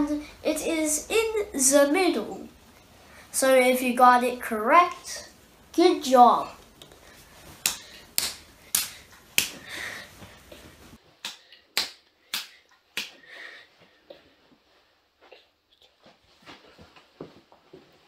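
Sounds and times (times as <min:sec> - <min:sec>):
child clapping hands: 0:07.6 - 0:09.6, 0:11.2 - 0:13.2.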